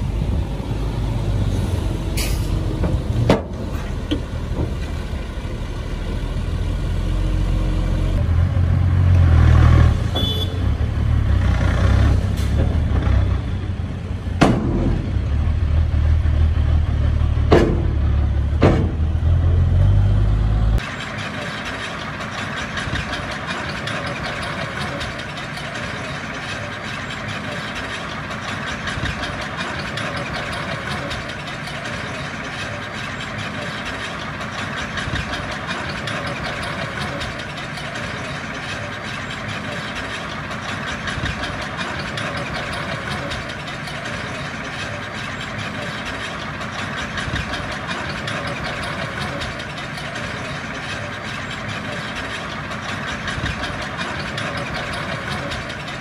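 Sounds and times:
diesel machinery engine rumble: 0:00.0 - 0:56.0
sharp metallic clanks: 0:20.8 - 0:56.0.

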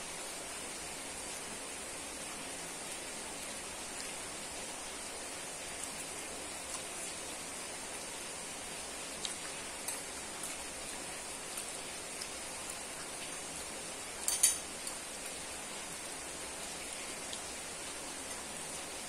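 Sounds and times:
steady hiss: 0:00.0 - 0:19.0
cutlery clattering: 0:14.2 - 0:14.7
cutlery clicking on ceramic plate: 0:14.3 - 0:14.6.

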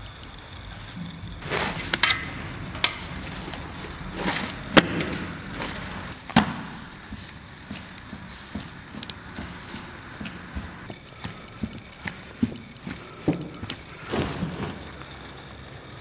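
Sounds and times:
sharp knocks and slaps: 0:06.3 - 0:12.6.

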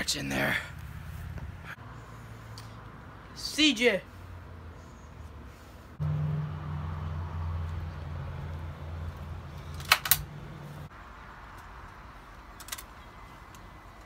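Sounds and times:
handgun clicks: 0:09.6 - 0:10.3.

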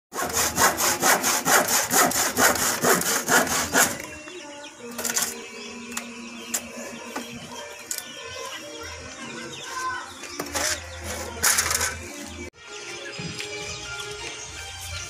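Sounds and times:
hand saw cutting wood: 0:00.1 - 0:04.1.

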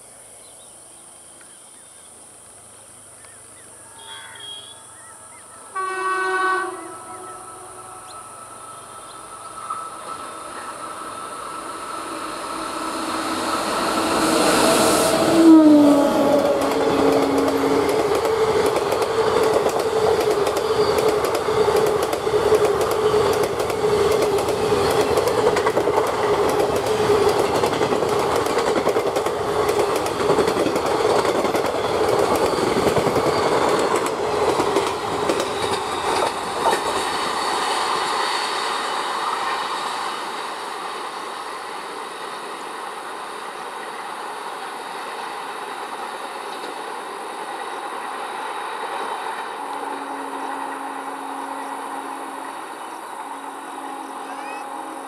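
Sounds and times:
train drone: 0:00.0 - 0:55.0
train wheels clattering on rails: 0:13.2 - 0:39.0.

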